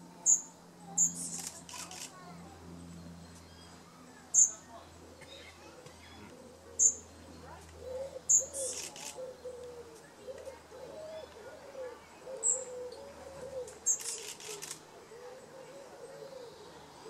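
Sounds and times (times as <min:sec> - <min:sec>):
pigeon cooing: 0:07.8 - 0:17.0.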